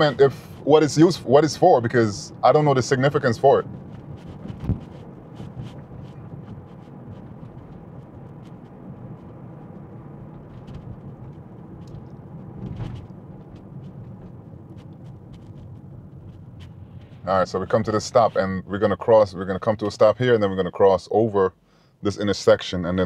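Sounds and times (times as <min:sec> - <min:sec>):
road and tyre noise in car cabin: 0:00.0 - 0:23.0
short thump: 0:04.2 - 0:04.9, 0:10.4 - 0:14.4.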